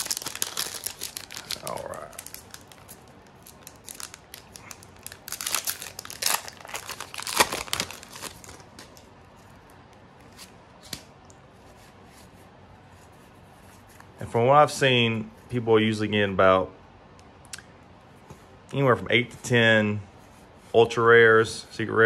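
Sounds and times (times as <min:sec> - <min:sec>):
foil wrapper crinkling and tearing: 0:00.0 - 0:09.1.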